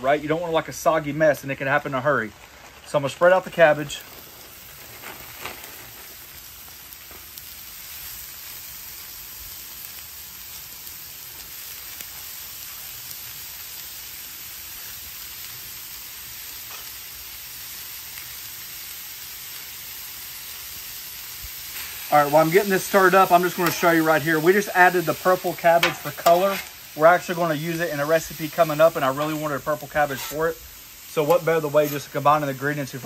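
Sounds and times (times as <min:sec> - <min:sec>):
vegetables sizzling on a griddle: 0:00.0 - 0:33.0.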